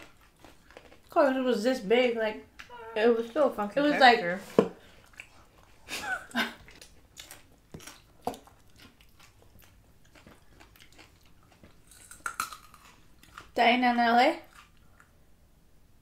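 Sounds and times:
carrot crunching: 0.0s - 1.2s, 6.4s - 13.6s.

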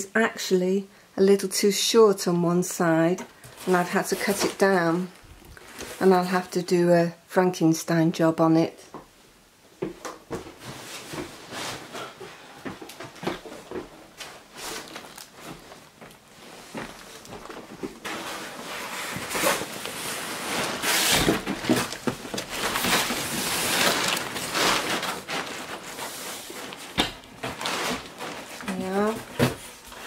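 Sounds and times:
cardboard scraping: 3.5s - 6.0s, 10.5s - 30.0s
paper rustling: 13.3s - 30.0s.

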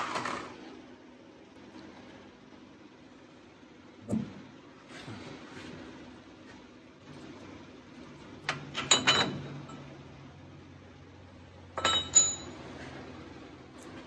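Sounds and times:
sharp metallic clinks: 11.8s - 12.6s.

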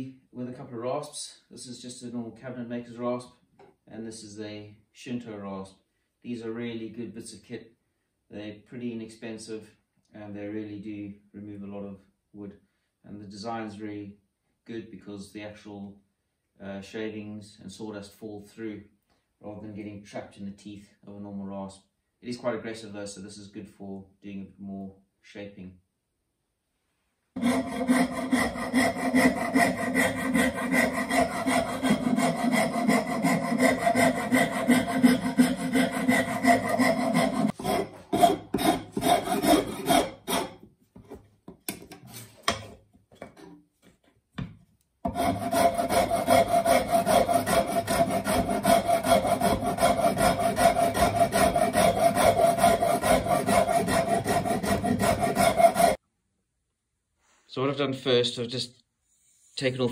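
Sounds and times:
rasp cutting wood: 27.4s - 40.6s, 45.1s - 56.0s.

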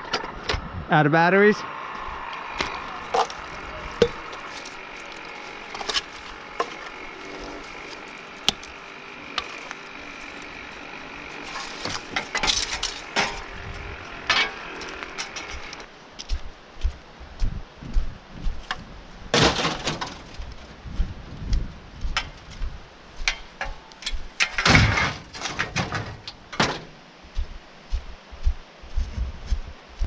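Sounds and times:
scrap metal clanking: 2.6s - 15.9s, 19.4s - 20.4s, 23.6s - 26.9s.

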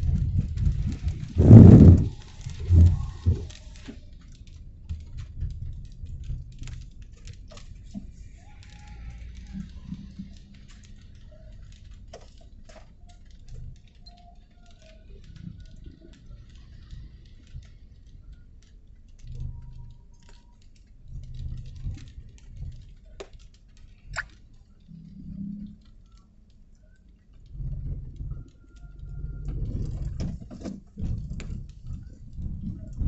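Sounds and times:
low rumble: 0.0s - 3.9s
raindrops pattering on hard surface: 0.0s - 33.0s.

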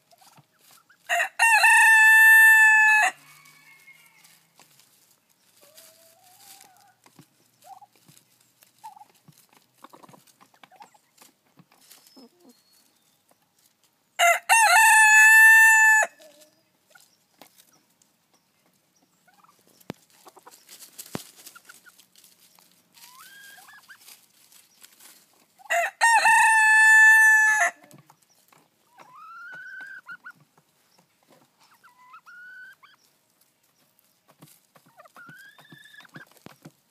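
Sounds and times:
chickens calling: 0.0s - 36.9s
rooster crowing: 1.1s - 4.5s, 14.2s - 16.2s, 25.7s - 27.8s.

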